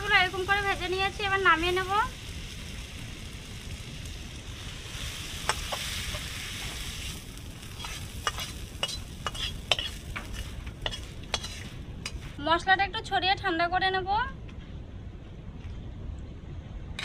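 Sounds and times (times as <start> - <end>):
masala sizzling in a pan: 0.0 - 12.4
metal spatula scraping pan: 7.7 - 12.3.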